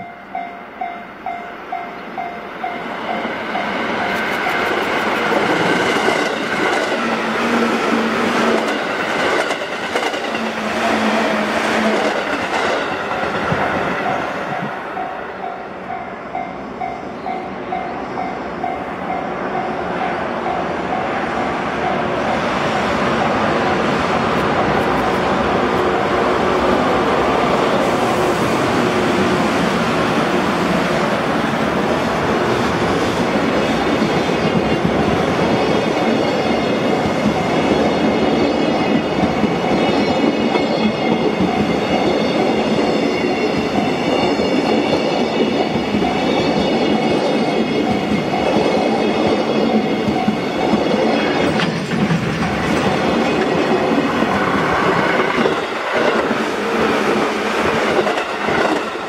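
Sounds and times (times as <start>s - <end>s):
high ringing tone: 0.0s - 4.8s, 14.0s - 24.0s
freight train wheels clattering: 2.7s - 15.1s, 32.2s - 59.0s.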